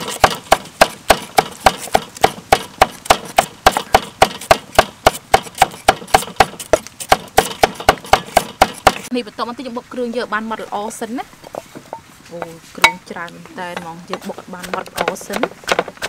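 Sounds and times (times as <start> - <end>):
cleaver chopping on wooden board: 0.0 - 9.1, 13.7 - 16.0.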